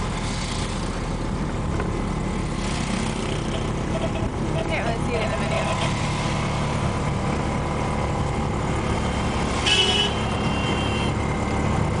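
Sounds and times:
auto-rickshaw engine running: 0.0 - 12.0
road noise: 0.0 - 12.0
horn honking: 9.6 - 11.2.

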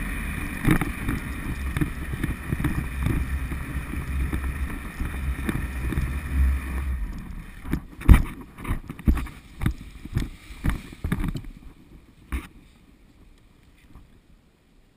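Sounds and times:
wind rush on microphone: 0.0 - 14.2
footsteps on grass: 9.0 - 12.7.

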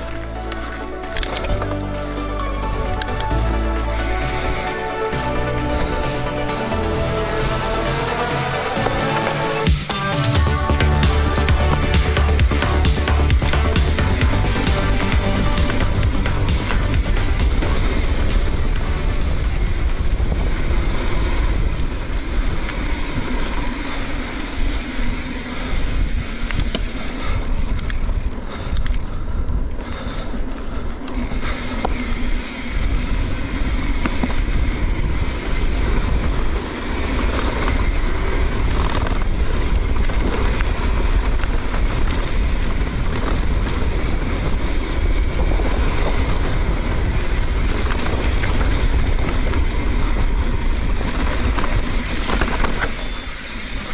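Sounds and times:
bike rattling: 0.0 - 2.0, 2.8 - 53.9
tyres rumbling over dirt: 3.8 - 24.2
wind noise on microphone: 11.4 - 53.9.

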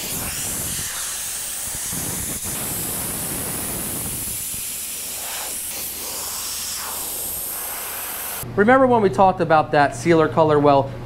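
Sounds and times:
compressed air blow gun hissing: 0.0 - 8.4.

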